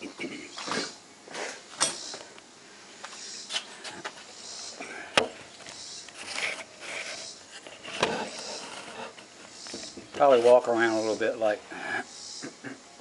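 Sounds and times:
rustling: 5.4 - 11.0.

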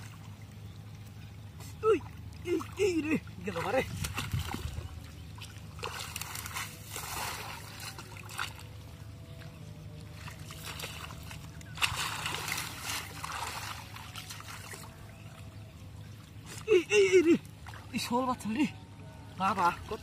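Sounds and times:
hands splashing in muddy water: 3.4 - 8.8, 10.1 - 14.9.

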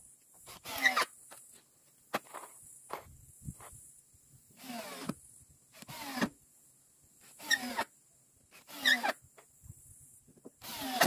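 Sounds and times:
cordless drill driving screws: 0.4 - 1.1, 4.6 - 5.2, 5.8 - 6.3, 7.2 - 7.9, 8.5 - 9.2, 10.6 - 11.0.

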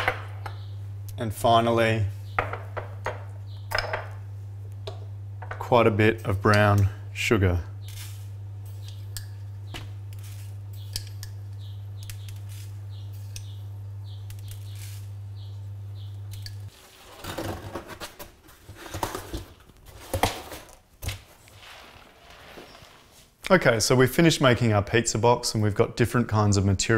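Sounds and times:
steady low hum: 0.0 - 16.7.

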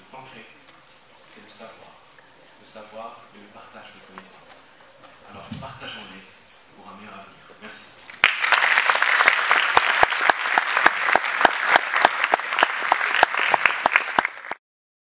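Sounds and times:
audience applauding: 8.1 - 14.6.

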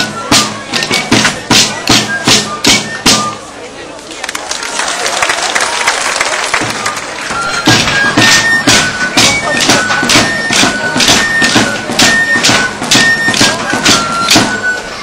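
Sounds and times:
wooden sticks clacking: 0.0 - 3.4, 6.6 - 15.0
thin piped melody: 0.0 - 3.5, 7.2 - 15.0.

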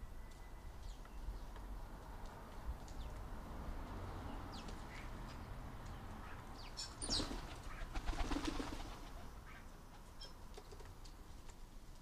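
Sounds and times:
bird wings flapping: 7.1 - 9.3.

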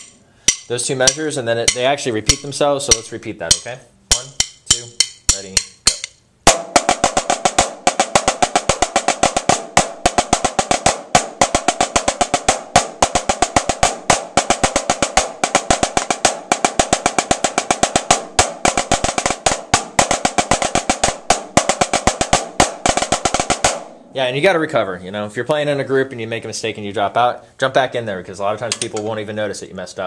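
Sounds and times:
snare drums playing: 0.9 - 24.2.

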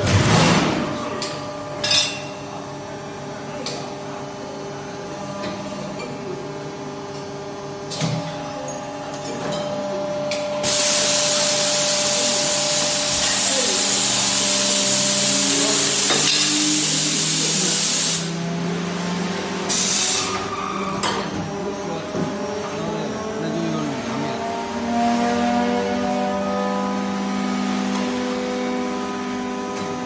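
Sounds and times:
loud spray hiss: 10.6 - 18.3.

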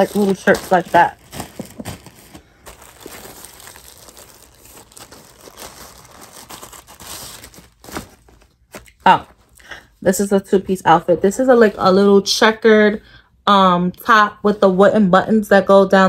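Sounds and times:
garment rustling: 0.0 - 9.6
plastic bag crinkling: 0.0 - 9.6.

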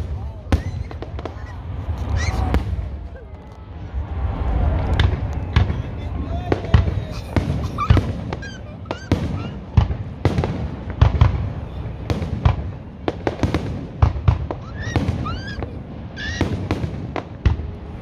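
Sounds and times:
low rumble: 0.0 - 14.5
rising firework whistles: 0.0 - 18.0
fireworks shells bursting: 7.1 - 11.2.

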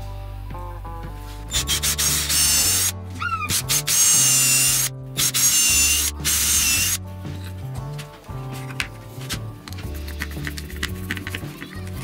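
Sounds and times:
cordless drill whining: 1.5 - 7.0.

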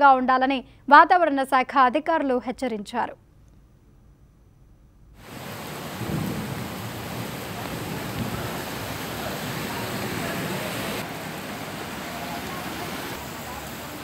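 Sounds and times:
heavy rain falling: 5.2 - 14.0.

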